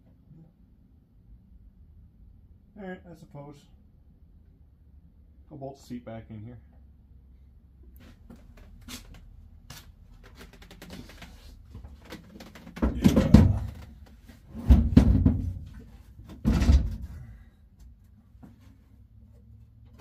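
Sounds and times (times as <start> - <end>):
small clicks and rustling: 8.0 - 12.8
seat thumping on metal floor: 12.7 - 14.0, 14.6 - 17.1.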